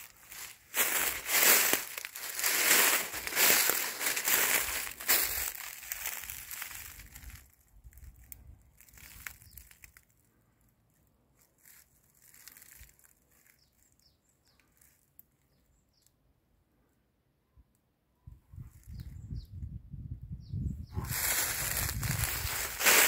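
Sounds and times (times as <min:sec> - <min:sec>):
dry leaves rustling and crunching: 0:00.0 - 0:10.1, 0:11.4 - 0:13.8, 0:21.0 - 0:23.0
faint bird chirps: 0:13.3 - 0:16.7.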